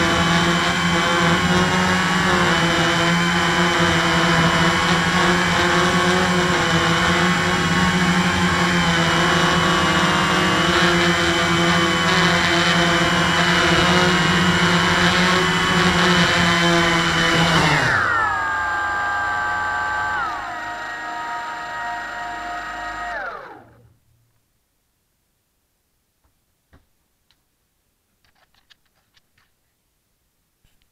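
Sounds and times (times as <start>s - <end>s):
quadcopter motors whining: 0.0s - 24.0s.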